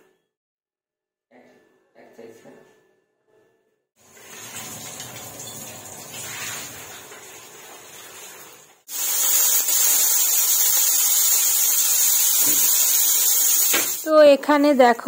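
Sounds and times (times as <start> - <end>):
onions sizzling in hot oil: 8.9 - 14.1.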